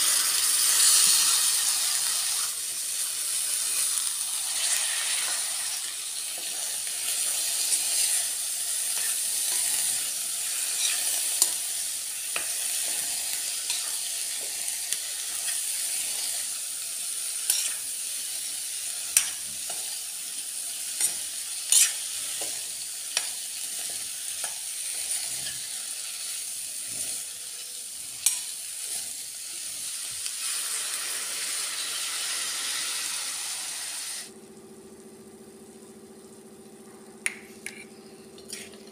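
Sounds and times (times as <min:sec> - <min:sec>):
vegetables sizzling in a pan: 0:00.0 - 0:38.9
spoon scraping a steel pan: 0:09.0 - 0:11.6, 0:17.5 - 0:17.8, 0:21.0 - 0:22.6, 0:37.3 - 0:38.9.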